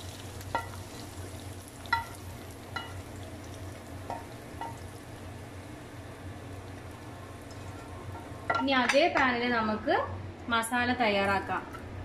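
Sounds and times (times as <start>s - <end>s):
low steady hum: 0.0s - 12.0s
spatula clinking on pan and plate: 1.9s - 3.0s.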